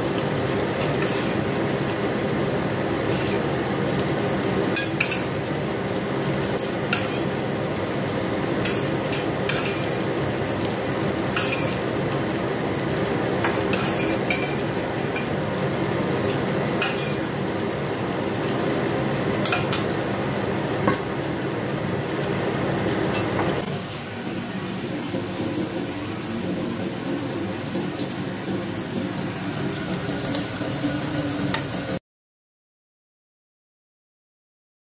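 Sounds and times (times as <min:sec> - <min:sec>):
vegetables sizzling in a wok: 0:00.0 - 0:32.0
metal spatula scraping pan: 0:00.8 - 0:01.6, 0:03.0 - 0:03.6, 0:04.8 - 0:05.4, 0:06.6 - 0:07.4, 0:08.6 - 0:10.1, 0:11.3 - 0:11.9, 0:13.4 - 0:15.4, 0:16.8 - 0:17.3.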